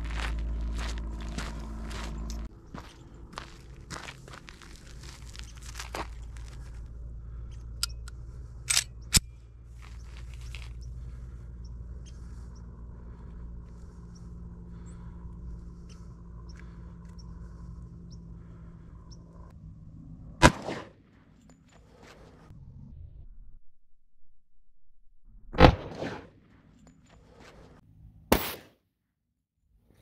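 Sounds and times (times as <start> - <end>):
low background rumble: 0.0 - 26.8
pistol handling clicks: 7.8 - 9.3
pistol shot: 20.4 - 21.0, 25.6 - 26.3, 28.3 - 28.8.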